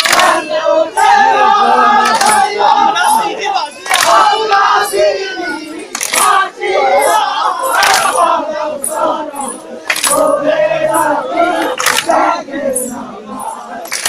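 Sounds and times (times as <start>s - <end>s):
men singing and chanting: 0.0s - 14.0s.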